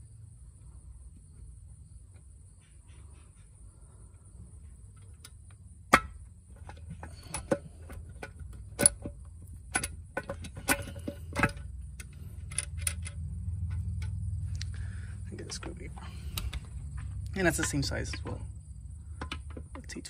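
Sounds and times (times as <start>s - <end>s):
metallic clicks and knocks: 4.9s - 14.2s, 15.4s - 18.5s, 19.1s - 20.0s.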